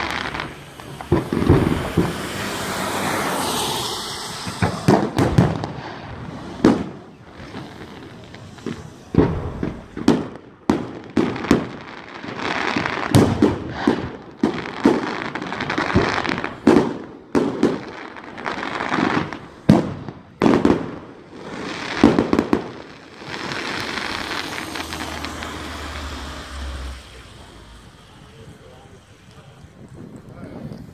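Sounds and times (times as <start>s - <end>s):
fireworks bangs: 0.0s - 30.9s
fireworks crackling: 0.0s - 30.9s.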